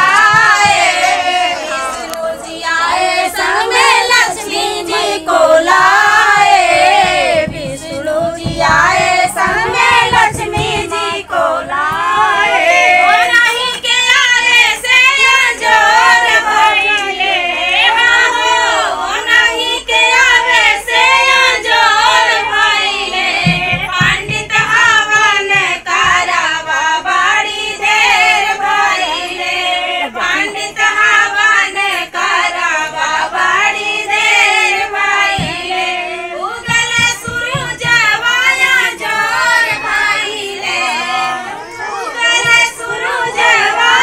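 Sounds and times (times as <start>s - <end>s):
women singing folk song: 0.0s - 44.0s.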